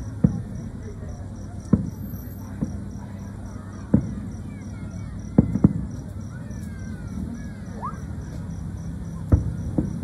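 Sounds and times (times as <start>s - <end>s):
distant fireworks booms: 0.0s - 3.2s, 3.8s - 6.2s, 9.1s - 10.0s
faint whistling glides: 6.2s - 10.0s.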